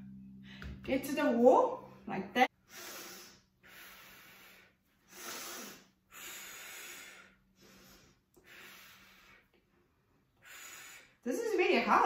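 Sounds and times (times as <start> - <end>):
woman breathing hard: 2.6 - 11.2.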